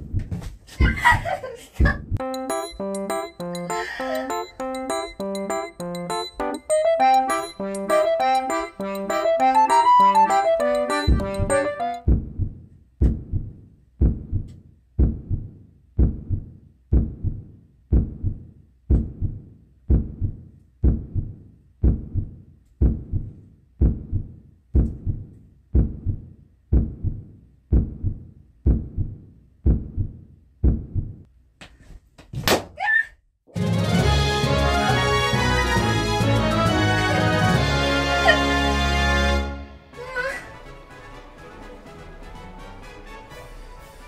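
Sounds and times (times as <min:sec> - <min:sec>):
steady low thumps: 0:10.8 - 0:31.3.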